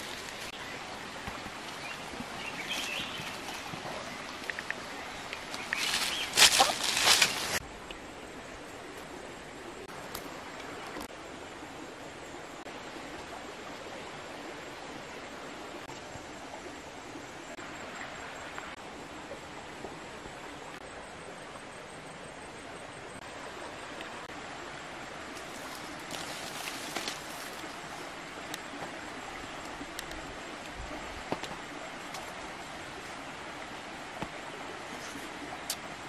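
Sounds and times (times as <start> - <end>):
rustles: 0.0 - 0.6, 1.3 - 7.6, 25.3 - 28.9
rushing hiss of outdoor ambience: 0.0 - 36.0.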